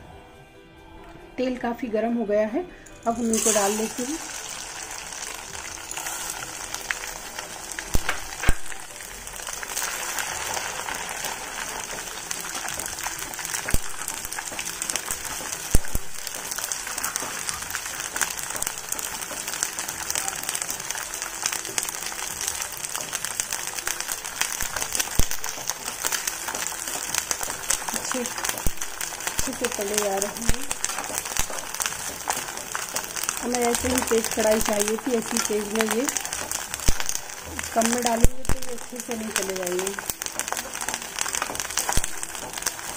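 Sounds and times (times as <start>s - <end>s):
hot oil sizzling and crackling: 3.0s - 42.9s.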